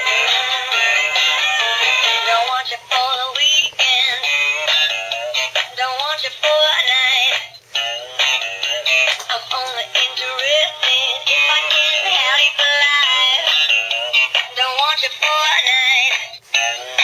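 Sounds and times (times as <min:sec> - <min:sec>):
toy playing a song: 0:00.0 - 0:17.0.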